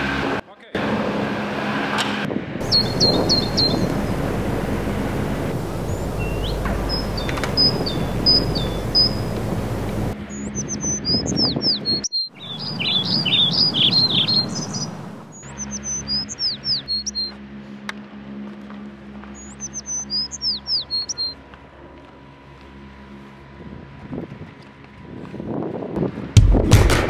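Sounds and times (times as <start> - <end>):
low steady hum: 2.6 - 10.2
songbird singing: 2.6 - 17.3, 19.4 - 21.4.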